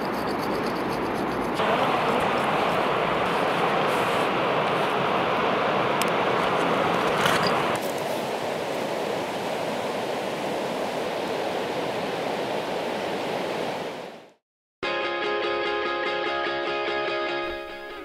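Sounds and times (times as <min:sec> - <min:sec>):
river water rushing over stones: 0:01.6 - 0:14.3.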